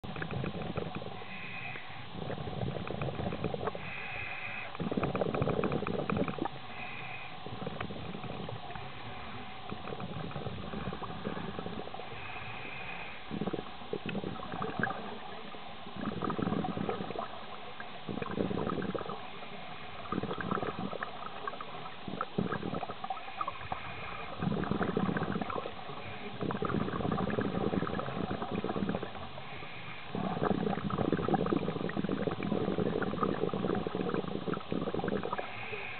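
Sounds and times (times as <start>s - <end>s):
exhaled bubbles rumbling: 0.0s - 35.9s
regulator hissing inhalations: 1.1s - 2.4s, 3.8s - 5.1s, 6.7s - 7.8s, 11.2s - 14.4s, 28.6s - 30.6s, 34.0s - 35.9s.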